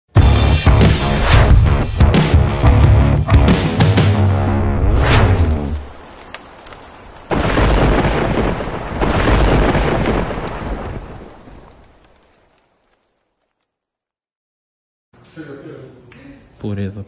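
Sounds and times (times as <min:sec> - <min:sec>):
thunder rolling: 0:04.2 - 0:12.4
rain: 0:05.2 - 0:13.8.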